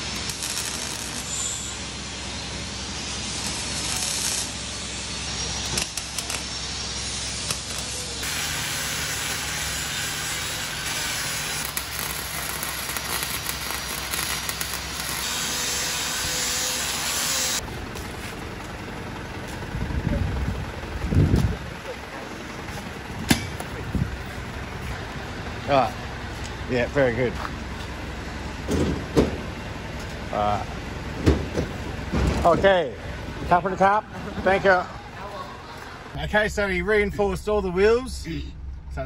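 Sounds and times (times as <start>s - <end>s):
rough metal grinding hiss: 0.0s - 17.6s
welding crackles and clicks: 0.0s - 18.8s.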